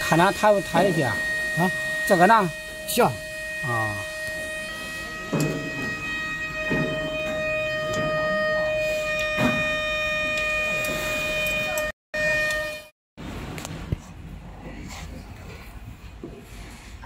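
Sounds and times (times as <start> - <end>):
high-pitched electrical whine: 0.0 - 12.9.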